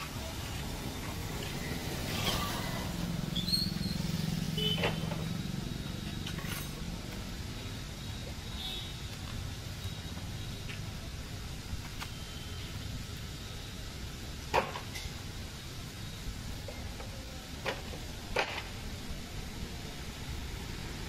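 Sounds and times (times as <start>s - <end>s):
street traffic rumbling: 0.0s - 21.0s
vehicle engine passing: 0.7s - 7.4s.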